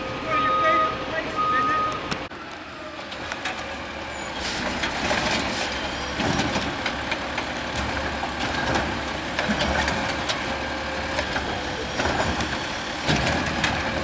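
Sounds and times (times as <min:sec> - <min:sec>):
diesel engine running: 0:00.0 - 0:14.0
air brakes hissing: 0:04.2 - 0:06.1.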